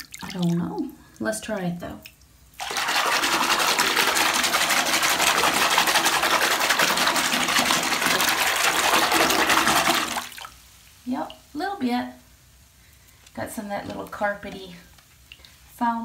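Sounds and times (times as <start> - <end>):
bathwater churning: 2.6 - 10.5.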